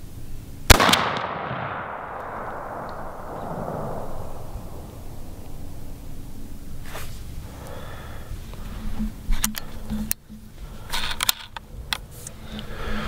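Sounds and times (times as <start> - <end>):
faint outdoor background: 0.0 - 13.0
handling clicks and rustles: 8.4 - 12.7.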